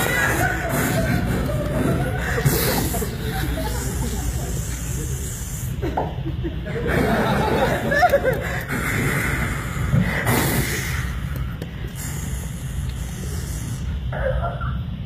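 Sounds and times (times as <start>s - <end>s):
man making vocal hissing effects: 0.0s - 6.0s, 8.4s - 14.2s.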